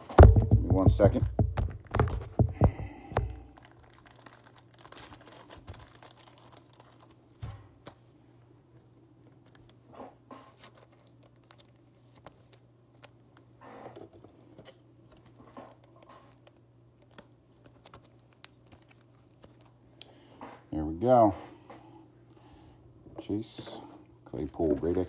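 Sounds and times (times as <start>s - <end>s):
steady low hum: 0.0s - 4.7s
plastic sleeve rustling: 0.2s - 8.2s, 10.5s - 13.4s
plastic card sleeves clicking: 15.8s - 19.7s.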